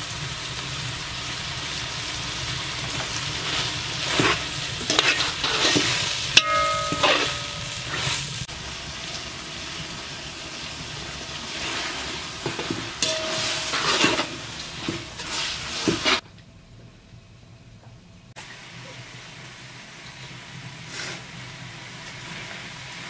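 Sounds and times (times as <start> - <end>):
meat and tomatoes sizzling: 0.0 - 16.2, 18.4 - 23.0
spatula clinking against pot: 4.9 - 8.2, 12.6 - 16.2
spatula scraping pot bottom: 12.5 - 16.2.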